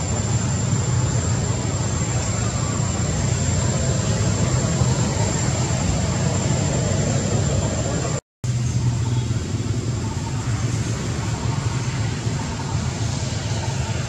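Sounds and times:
thin high steady tone: 0:00.0 - 0:08.2
low engine rumble: 0:00.0 - 0:14.0.

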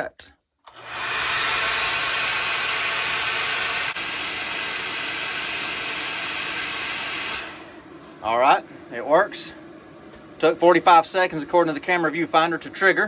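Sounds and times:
heat gun blowing air: 0:00.7 - 0:07.8.

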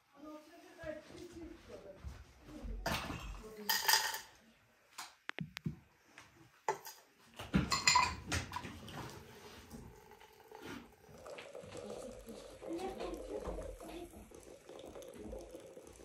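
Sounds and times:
glass teapot clinking on metal tray: 0:03.7 - 0:04.3, 0:07.7 - 0:08.2.

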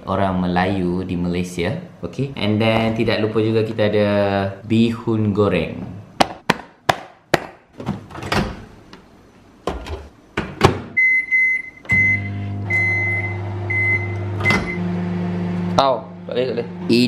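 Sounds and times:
microwave keypad beeps: 0:11.0 - 0:14.9
microwave oven humming: 0:11.1 - 0:17.0.

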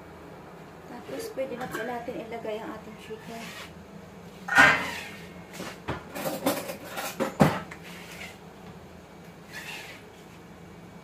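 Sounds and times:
cookware clattering: 0:04.5 - 0:05.1.

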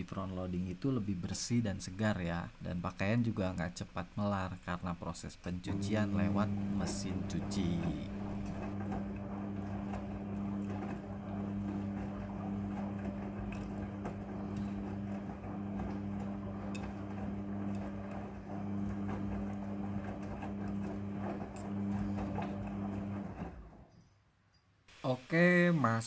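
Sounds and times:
washing machine motor humming: 0:05.5 - 0:23.9
clothes sloshing in drum: 0:05.8 - 0:23.7.

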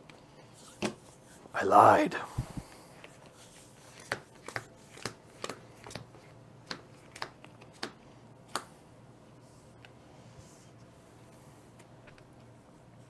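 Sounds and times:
playing cards clicking on table: 0:03.9 - 0:08.7.

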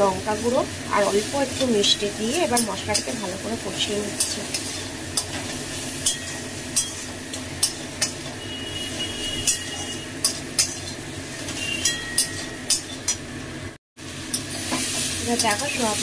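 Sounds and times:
paste sizzling in oil: 0:00.1 - 0:12.6, 0:14.0 - 0:16.0
spatula scraping and knocking pan: 0:04.2 - 0:13.2.

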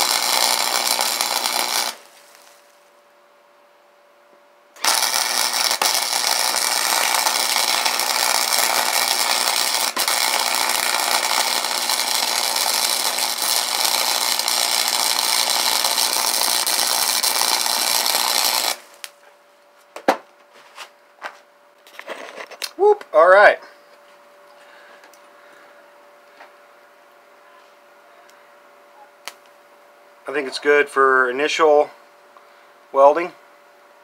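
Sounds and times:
welding arc sizzling hiss: 0:00.0 - 0:03.0, 0:04.8 - 0:19.3, 0:30.2 - 0:31.8, 0:32.9 - 0:33.3.

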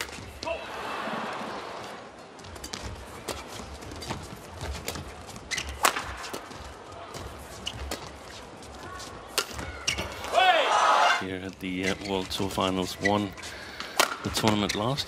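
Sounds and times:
shoe squeaks on court: 0:02.6 - 0:06.6, 0:07.5 - 0:08.4, 0:09.0 - 0:10.2, 0:11.7 - 0:13.6, 0:14.4 - 0:15.0
rackets striking shuttlecock: 0:05.6 - 0:06.6, 0:09.3 - 0:10.1.

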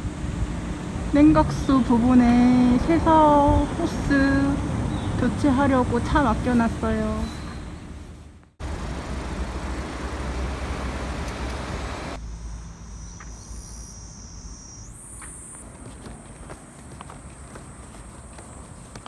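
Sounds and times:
roadside traffic rumble: 0:00.0 - 0:19.0
high insect drone: 0:08.6 - 0:19.0
footsteps on brick paving: 0:15.2 - 0:19.0.

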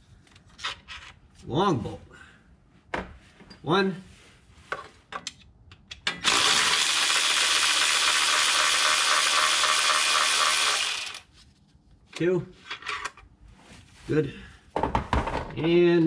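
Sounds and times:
power ratchet running: 0:06.2 - 0:11.2.

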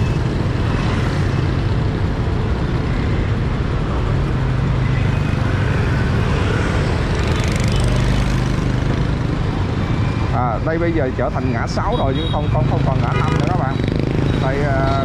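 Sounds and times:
road traffic engine hum: 0:00.0 - 0:15.0.

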